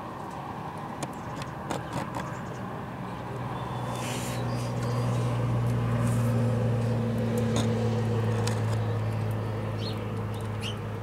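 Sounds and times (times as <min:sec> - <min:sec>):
low mechanical hum: 0:00.0 - 0:11.0
bird chirps: 0:03.5 - 0:05.3, 0:09.1 - 0:10.8.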